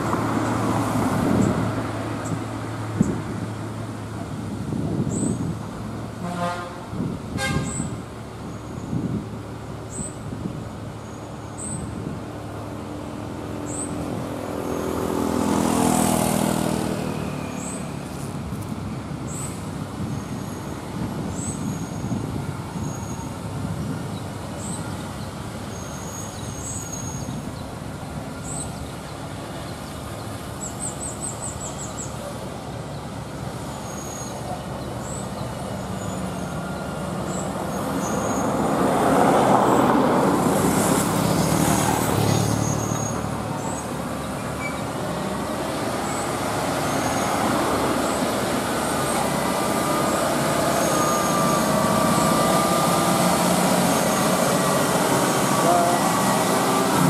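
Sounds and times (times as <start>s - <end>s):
road traffic noise: 0.0s - 57.0s
vehicle engine passing: 12.5s - 18.3s, 35.6s - 57.0s.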